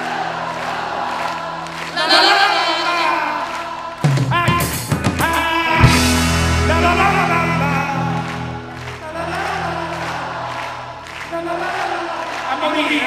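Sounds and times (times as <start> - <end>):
voices singing: 0.0 - 4.4
live rock music: 1.4 - 11.5.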